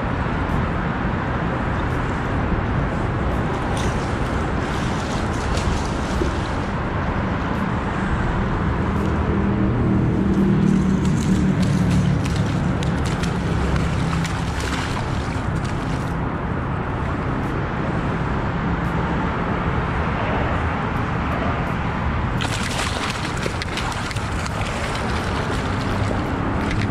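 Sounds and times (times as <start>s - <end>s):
traffic rumble on bridge: 0.0s - 26.9s
fish splashing in water: 3.6s - 6.8s, 10.7s - 16.2s, 22.4s - 26.9s.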